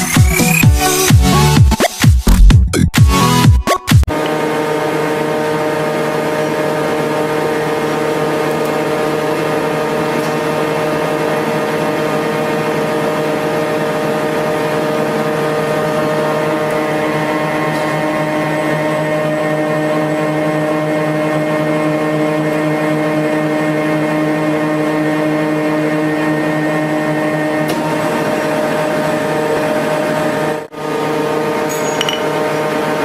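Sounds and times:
music with a beat: 0.0s - 4.1s
thread rolling machine humming: 4.1s - 33.0s.

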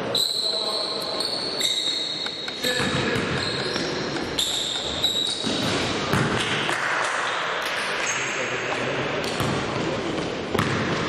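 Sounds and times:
shoe squeaks: 0.0s - 5.7s
voices echoing in hall: 0.0s - 11.0s
basketball bouncing on court: 2.2s - 7.0s, 9.2s - 11.0s.

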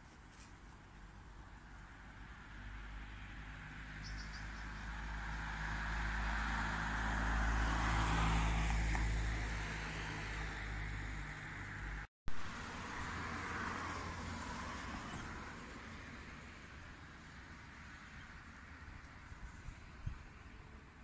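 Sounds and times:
car driving past: 2.1s - 11.9s, 12.5s - 16.6s.

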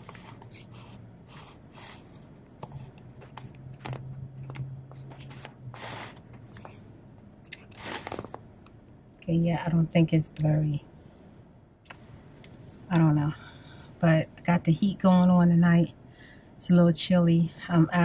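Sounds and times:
phone rustling and tapping: 2.6s - 6.8s
clothing brushing microphone: 4.9s - 6.3s.

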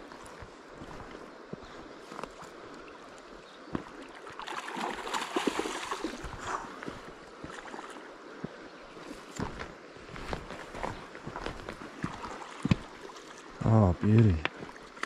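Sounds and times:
stream rushing: 0.0s - 15.0s
fish splashing and thrashing: 3.9s - 8.0s.

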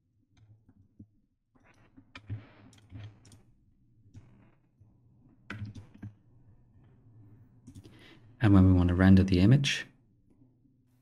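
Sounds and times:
keyboard and mouse clicking: 1.6s - 3.5s, 5.5s - 6.2s.

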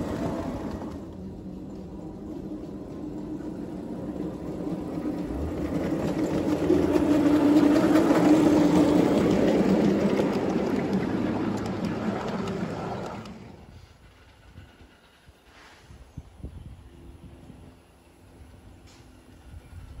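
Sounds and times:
miniature locomotive motor hum: 0.0s - 15.4s
wheels rumbling on rails: 0.0s - 20.0s.

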